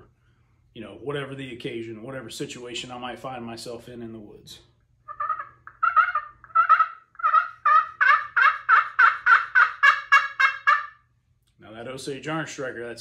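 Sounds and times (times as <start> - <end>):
raspy turkey call yelps: 5.0 - 11.1.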